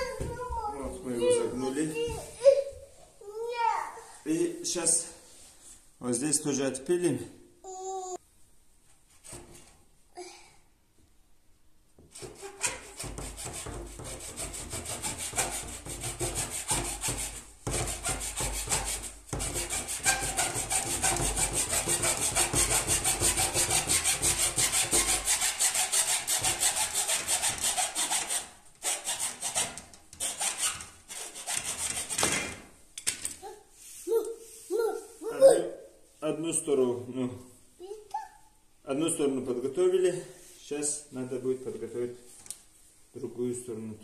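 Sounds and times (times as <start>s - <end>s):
hacksaw cutting plastic hose: 12.1s - 32.6s.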